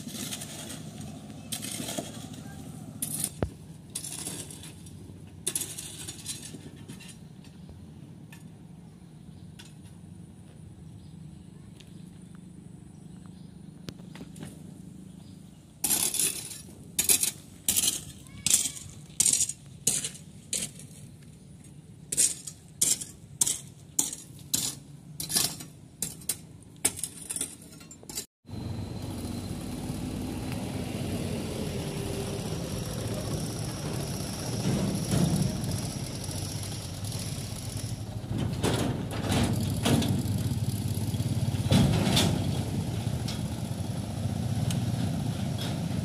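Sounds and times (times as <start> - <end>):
metal tool chipping concrete: 15.8 - 20.8
truck engine running: 28.5 - 46.0.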